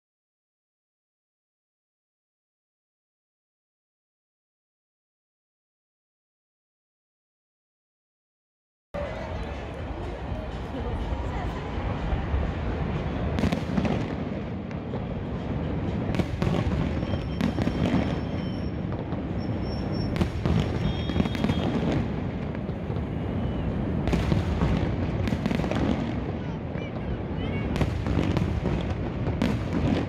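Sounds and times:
fireworks booming: 12.6s - 30.0s
fireworks cracks: 13.2s - 30.0s.

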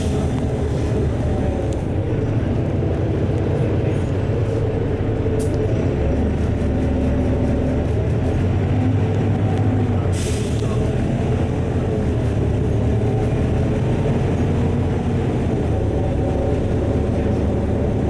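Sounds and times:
bus engine drone: 0.0s - 18.0s
tyre and road noise: 0.0s - 18.0s.

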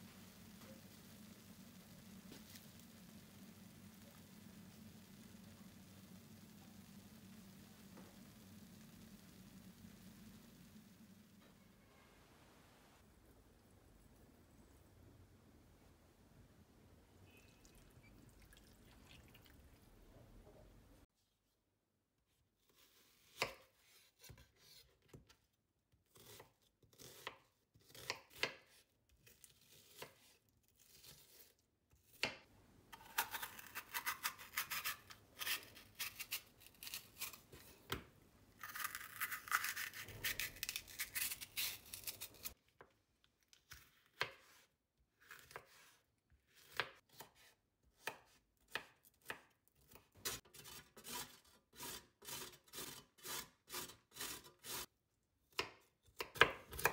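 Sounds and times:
knife slicing vegetables: 33.0s - 38.0s, 38.6s - 42.6s, 43.7s - 54.9s, 55.5s - 56.9s.

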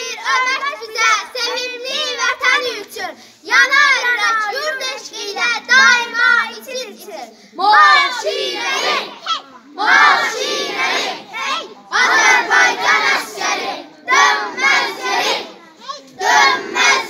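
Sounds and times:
girls chanting in unison: 7.5s - 15.6s, 16.2s - 17.0s.

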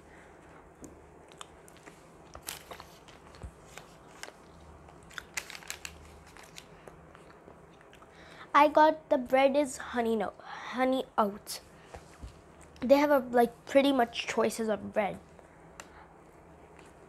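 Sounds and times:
chewing with soft crunches: 0.4s - 5.4s, 6.3s - 8.1s.

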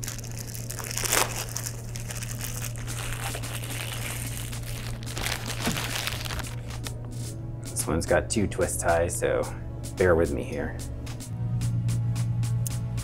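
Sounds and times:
plastic bag crinkling: 0.0s - 6.9s.

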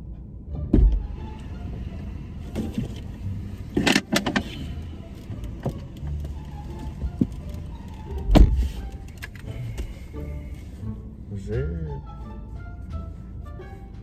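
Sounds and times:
car door shutting thud: 0.7s - 1.1s, 8.2s - 8.8s
car door latch clicks: 3.7s - 4.6s, 8.1s - 9.5s
person climbing into car seat: 5.3s - 10.1s.

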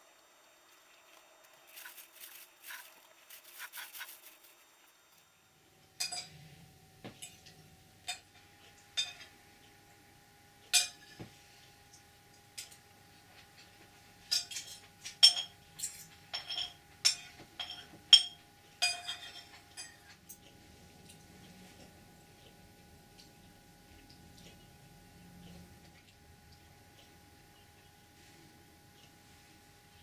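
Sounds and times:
faint steady high hum: 0.0s - 30.0s.

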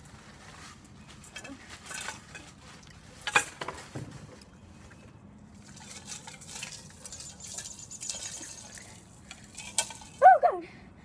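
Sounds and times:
metal pot clank: 5.6s - 10.2s.

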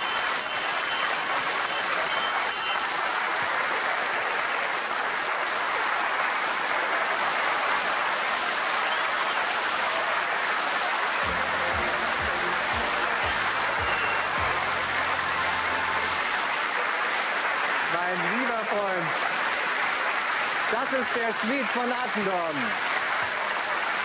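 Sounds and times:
audience applauding: 0.0s - 24.0s
music with bass line: 11.3s - 16.2s.

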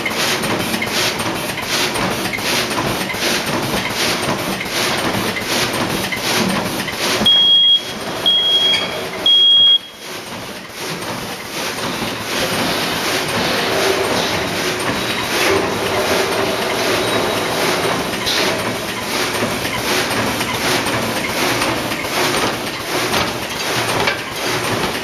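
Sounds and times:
bag-making machine running: 0.0s - 25.0s
short high beeps: 7.3s - 10.0s.

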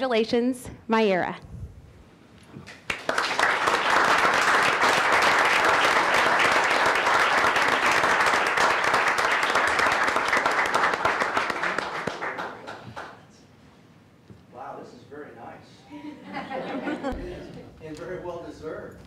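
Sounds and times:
audience applauding: 2.7s - 13.3s.

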